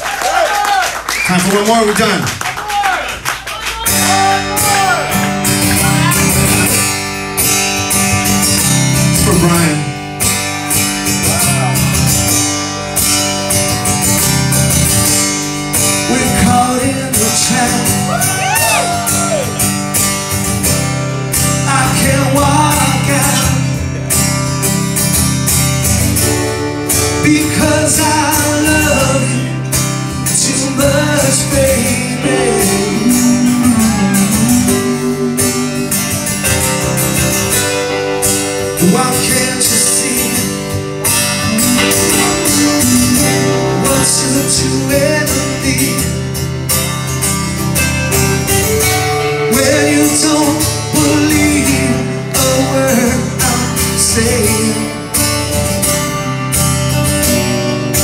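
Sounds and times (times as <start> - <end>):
live rock band playing: 3.2 - 58.0
person singing: 30.3 - 36.0, 41.4 - 46.2, 48.9 - 55.0.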